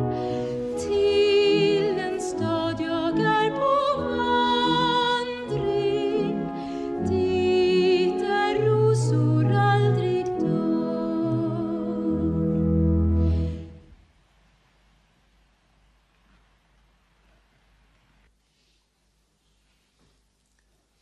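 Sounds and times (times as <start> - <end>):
person singing with vibrato: 0.0 - 13.8
soft sustained accompaniment: 0.0 - 14.0.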